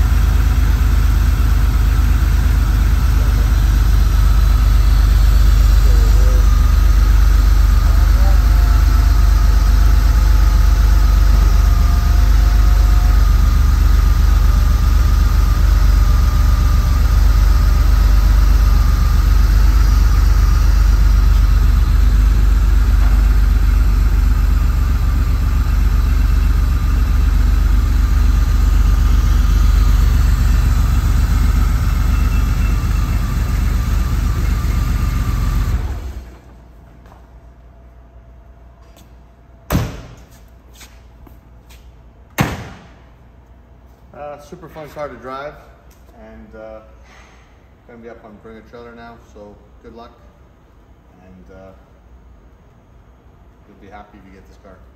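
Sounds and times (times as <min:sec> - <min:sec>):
car engine idling with whine: 0:00.0 - 0:36.9.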